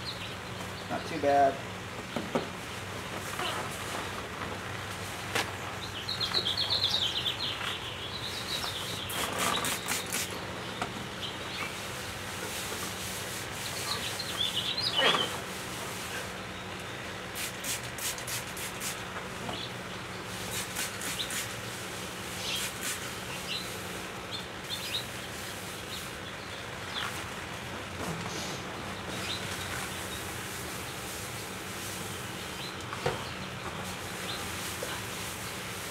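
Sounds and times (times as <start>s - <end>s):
birds chirping: 0.0s - 35.9s
paper towel rubbing wet wood: 9.1s - 10.3s, 17.4s - 19.0s, 20.3s - 23.2s.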